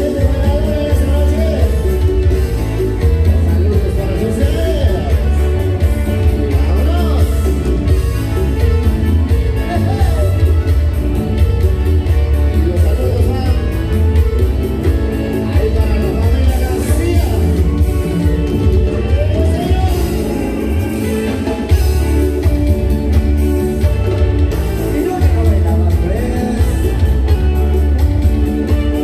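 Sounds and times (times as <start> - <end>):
live dance band playing: 0.0 - 29.0
person singing: 23.8 - 29.0.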